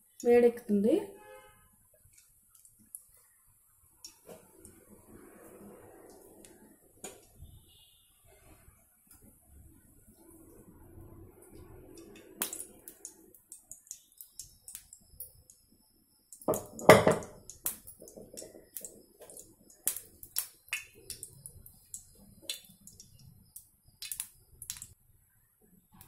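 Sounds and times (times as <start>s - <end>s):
oil crackling in frying pan: 10.4s - 15.7s, 16.3s - 25.0s.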